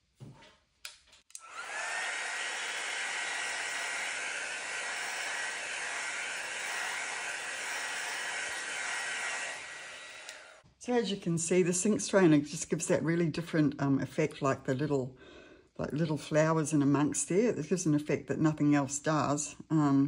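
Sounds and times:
heat gun fan whine: 0:01.3 - 0:10.6.

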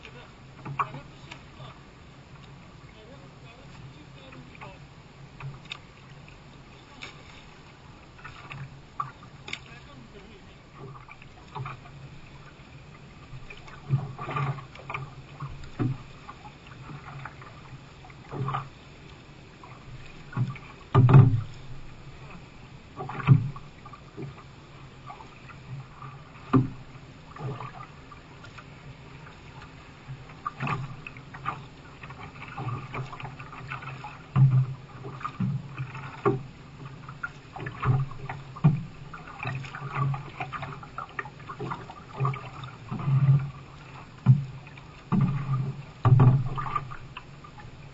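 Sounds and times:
paddle strokes: 0:00.0 - 0:47.9
water slapping against hull: 0:00.0 - 0:47.9
wash of water: 0:02.8 - 0:24.4, 0:25.0 - 0:47.9
knocks on canoe: 0:20.3 - 0:21.6, 0:26.4 - 0:26.8, 0:30.6 - 0:36.5, 0:44.2 - 0:47.0.

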